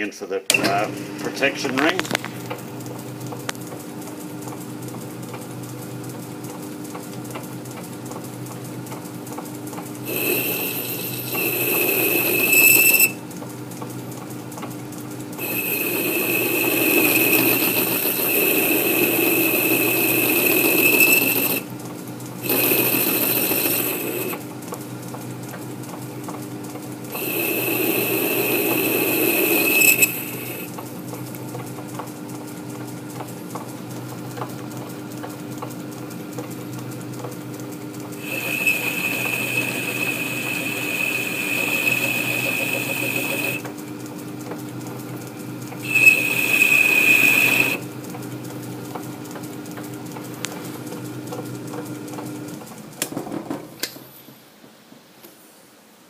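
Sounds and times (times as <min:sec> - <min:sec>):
lathe humming: 0:09.8 - 0:13.3, 0:14.7 - 0:31.3, 0:37.6 - 0:48.5
high-pitched cutting squeal: 0:10.1 - 0:13.2, 0:15.4 - 0:21.7, 0:22.4 - 0:24.4, 0:27.1 - 0:30.7, 0:38.2 - 0:43.6, 0:45.8 - 0:47.8.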